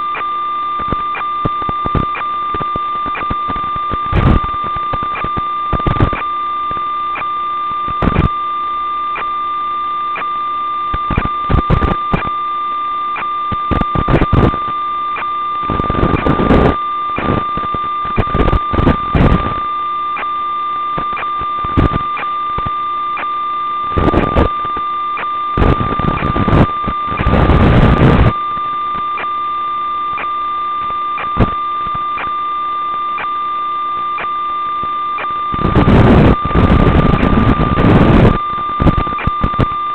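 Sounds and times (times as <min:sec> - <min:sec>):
static crackle: 0:00.0 - 0:39.9
steady electronic buzz: 0:00.0 - 0:39.9.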